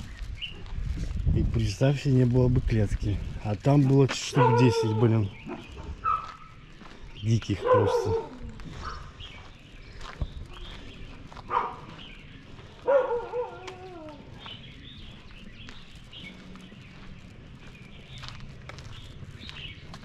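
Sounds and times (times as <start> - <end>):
dogs barking: 3.8 - 6.7, 7.4 - 9.2, 11.3 - 12.2, 12.8 - 14.6.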